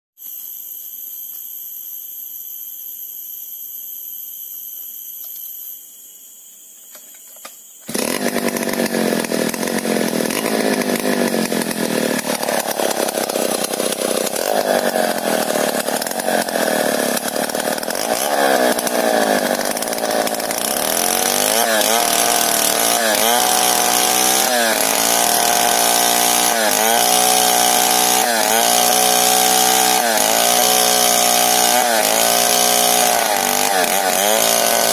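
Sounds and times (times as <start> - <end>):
forest insects droning: 0.2 - 20.8
chainsaw cutting log: 7.8 - 34.9.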